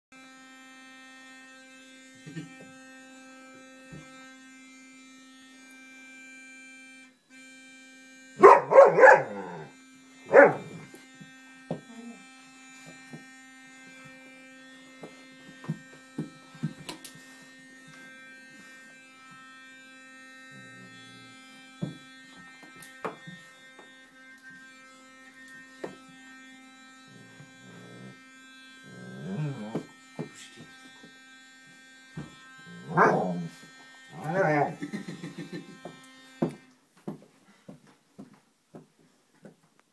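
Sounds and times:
electric toothbrush buzzing: 0.1 - 37.2
dog barking: 8.4 - 9.7, 10.3 - 10.7, 32.9 - 33.4.

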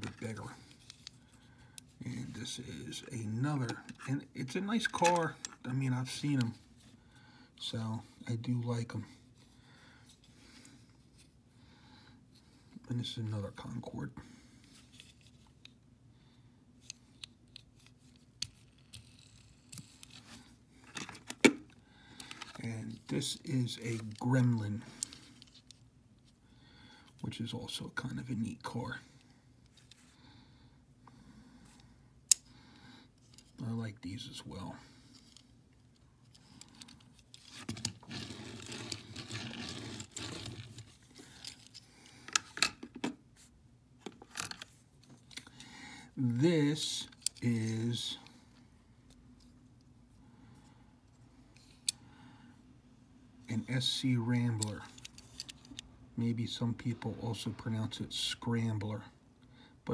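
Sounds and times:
metal toy car rubbing and scraping: 38.0 - 40.9.

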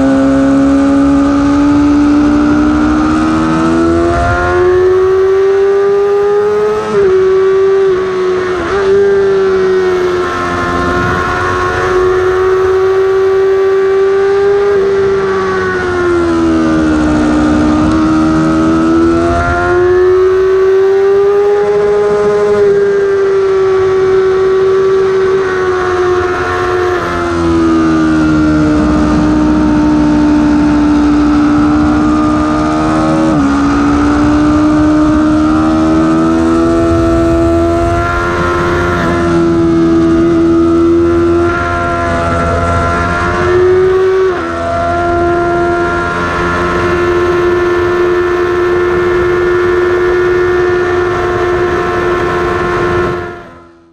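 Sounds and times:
motorcycle engine at high revs: 0.0 - 53.9
wind rush: 9.3 - 13.0, 26.2 - 47.0.

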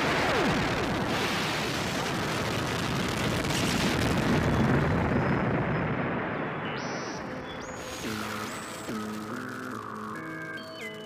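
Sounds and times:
harsh distorted synthesizer noise: 7.6 - 11.0.

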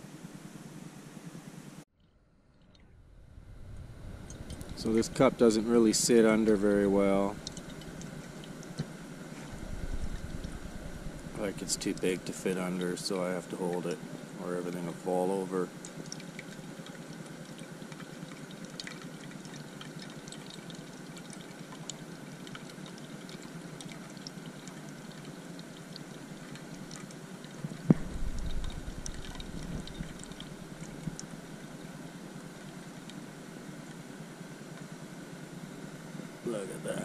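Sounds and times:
low rumble: 2.4 - 12.4, 27.6 - 31.7
gas stove burning: 3.6 - 13.2.

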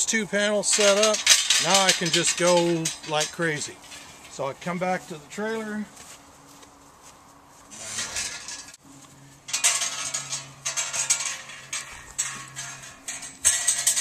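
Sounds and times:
metal panels clanking and rattling: 0.6 - 4.8, 7.7 - 8.8, 9.5 - 14.0.

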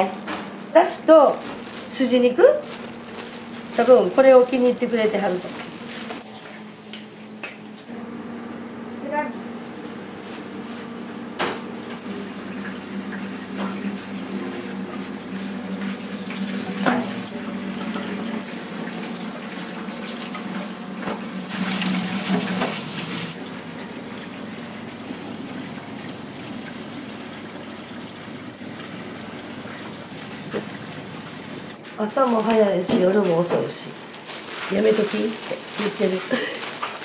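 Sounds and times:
kitchen hum: 0.0 - 37.0
tap water running into sink: 12.0 - 31.8.

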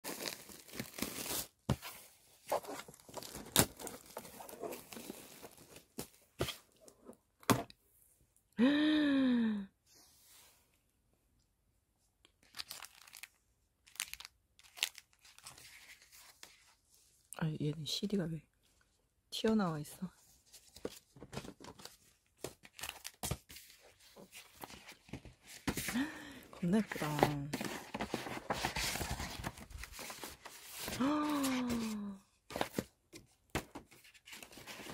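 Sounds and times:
cardboard and paper rustling: 0.0 - 7.6, 13.9 - 16.9, 20.2 - 34.9.

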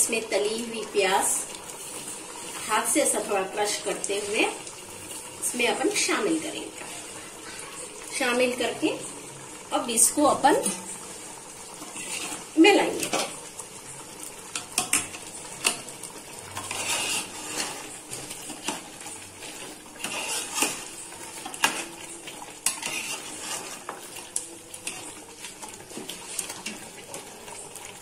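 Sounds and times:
chicken sizzling: 0.0 - 28.0
metal spoon scraping pot: 11.9 - 13.2, 16.5 - 22.0, 22.6 - 24.1.

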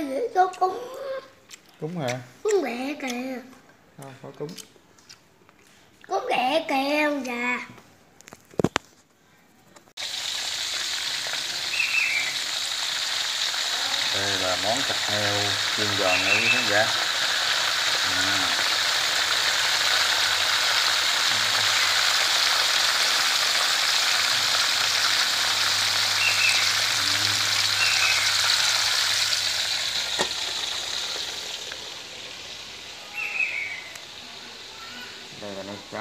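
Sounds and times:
pork deep-frying in oil: 10.0 - 36.0.

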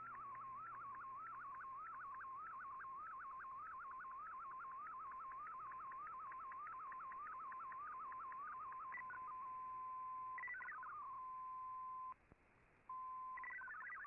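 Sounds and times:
warbling digital radio tone: 0.0 - 11.2, 13.4 - 14.0.

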